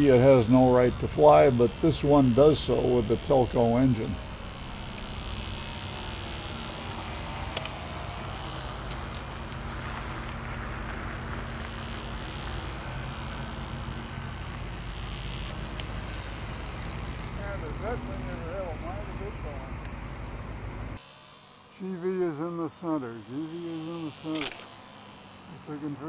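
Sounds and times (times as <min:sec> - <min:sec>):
model airplane engine buzzing: 0:00.0 - 0:26.0.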